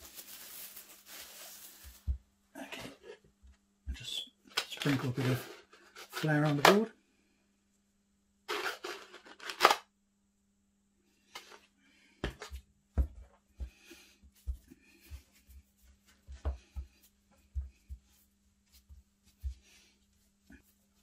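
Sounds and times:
flour rustling onto cutting board: 0.0 - 2.3.

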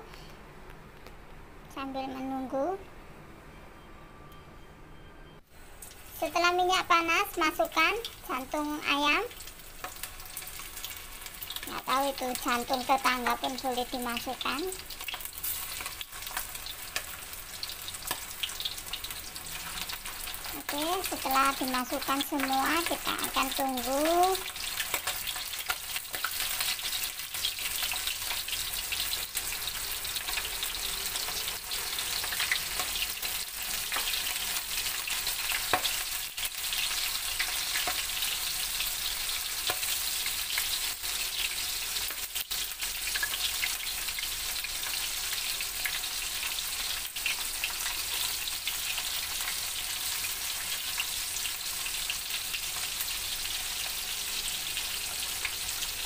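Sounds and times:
chicken deep-frying in oil: 5.5 - 56.0.

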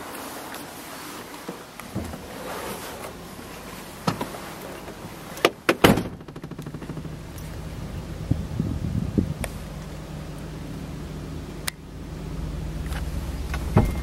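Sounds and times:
steady low hum: 6.0 - 14.0
truck door clunks: 13.0 - 14.0.

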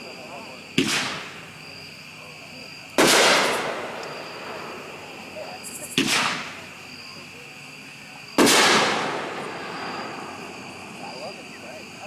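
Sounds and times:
firework bangs echoing: 0.6 - 1.7, 2.9 - 6.7, 8.3 - 11.1.

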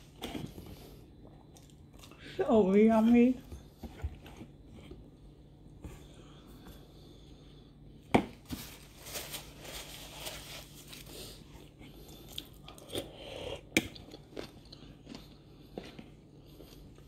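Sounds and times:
food handled in plastic tub: 8.4 - 11.4
chewing: 11.6 - 17.0.

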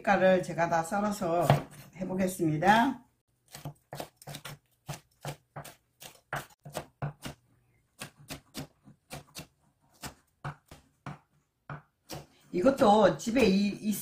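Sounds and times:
knife chopping on wooden board: 3.5 - 7.4, 8.0 - 12.3.

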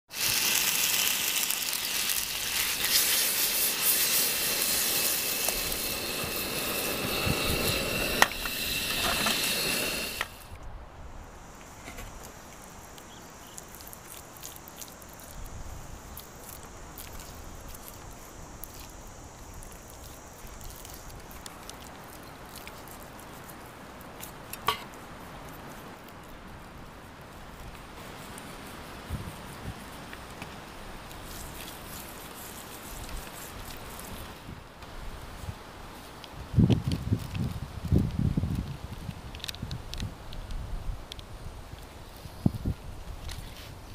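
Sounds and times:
food sizzling in a frying pan: 0.1 - 10.6
steady hiss: 0.1 - 43.9
wet squishing of knife on chicken: 13.4 - 15.5, 16.1 - 19.0, 19.6 - 24.9.

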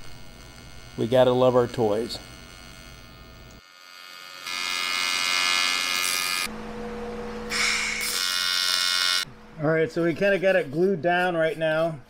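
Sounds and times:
welding arc buzzing: 0.0 - 9.3.

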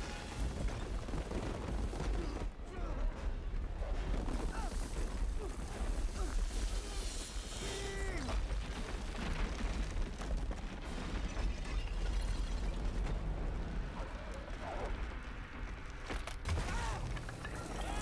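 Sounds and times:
rock collapsing with crashing debris: 0.0 - 2.6, 3.3 - 18.0.

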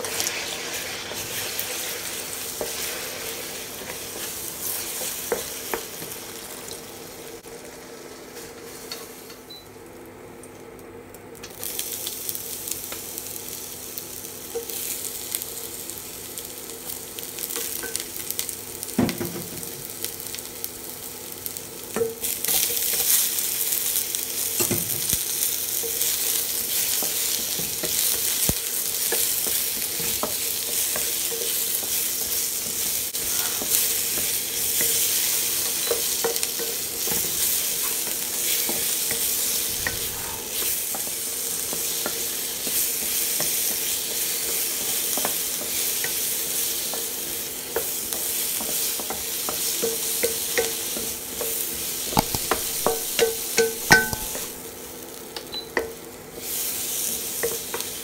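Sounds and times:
vegetables sizzling in a wok: 0.0 - 58.0
spatula tapping on pan: 52.2 - 54.5.

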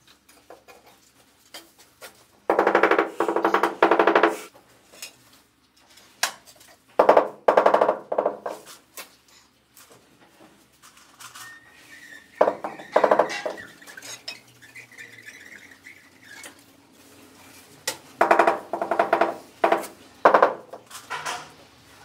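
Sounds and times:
tools knocking on ceramic tile: 7.0 - 8.6, 12.4 - 13.6, 18.2 - 21.3.

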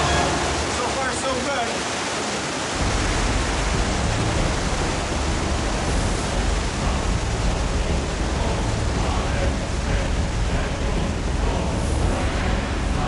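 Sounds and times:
water rushing in a tunnel: 0.0 - 13.0
deep rumble: 2.8 - 13.0.

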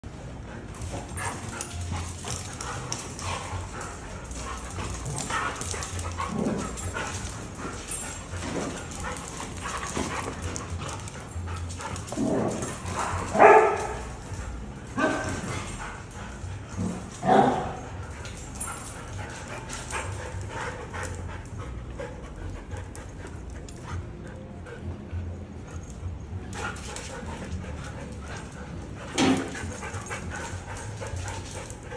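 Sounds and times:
dogs growling while playing: 0.6 - 31.9
dog barking: 13.0 - 14.1, 15.0 - 15.4, 17.2 - 17.8.

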